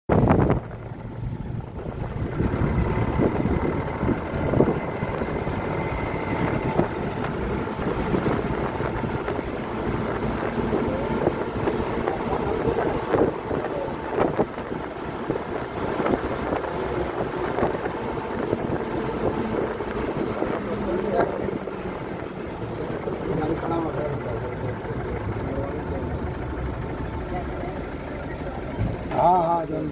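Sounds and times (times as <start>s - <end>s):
wind buffeting at window: 0.1s - 20.9s
bus engine and tyre drone: 0.1s - 29.9s.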